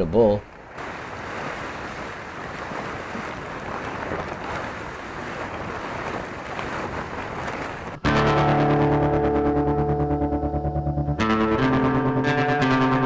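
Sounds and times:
plastic tarp rustling over leaves: 0.6s - 8.0s.

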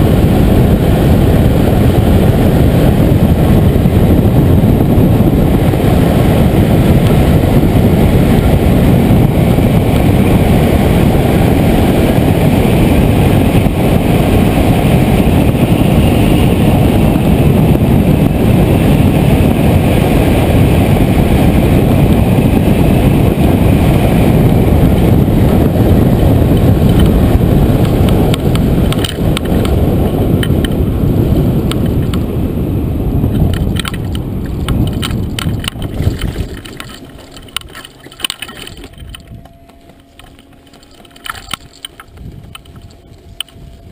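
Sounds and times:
wind rushing over microphone: 0.0s - 43.9s.

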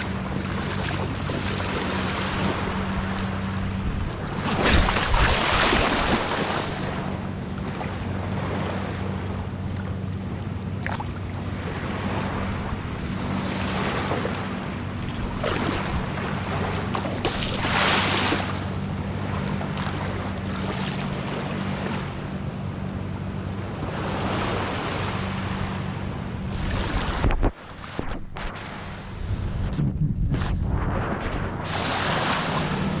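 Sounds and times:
small waves washing onto sand: 0.0s - 9.9s, 10.8s - 22.2s, 30.4s - 33.0s
wind buffeting microphone: 0.0s - 10.0s, 25.2s - 33.0s
steady low hum: 0.0s - 33.0s.

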